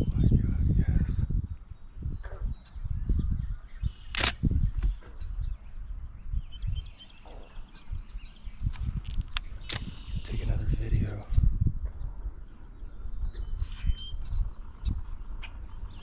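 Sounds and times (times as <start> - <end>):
small birds chirping: 0.0 - 16.0
wind gusting on microphone: 0.0 - 16.0
sharp clicks: 4.0 - 5.0, 8.7 - 10.0.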